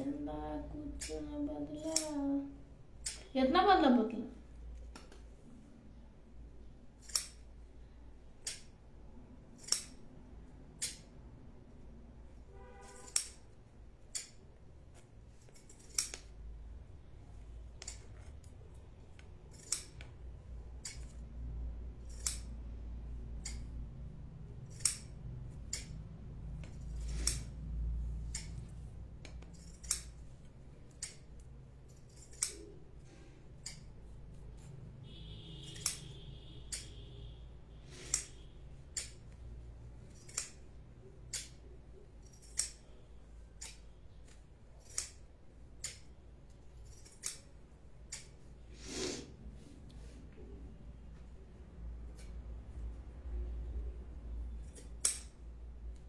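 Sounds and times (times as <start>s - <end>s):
low steady hum: 0.0s - 48.7s
sharp snipping clicks: 0.9s - 2.3s, 3.0s - 3.3s, 7.0s - 7.6s, 8.3s - 8.8s, 9.5s - 10.1s, 10.7s - 11.1s, 12.9s - 14.4s, 15.4s - 16.4s, 17.8s - 20.2s, 20.8s - 21.3s, 22.0s - 22.6s, 23.3s - 23.9s, 24.7s - 27.6s, 28.2s - 30.2s, 30.8s - 32.8s, 33.6s - 34.0s, 35.1s - 37.2s, 37.9s - 48.4s, 54.6s - 56.0s.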